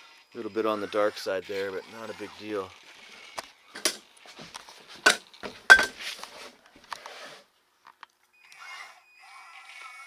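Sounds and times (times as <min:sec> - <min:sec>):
metal pieces clinking on wooden floor: 0:05.0 - 0:06.0.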